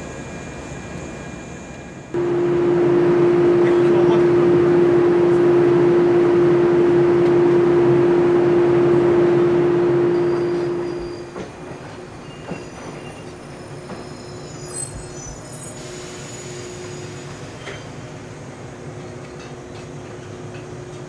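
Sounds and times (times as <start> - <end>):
train rolling in with squeals: 0.0 - 21.0
electric train humming tone: 0.3 - 11.7.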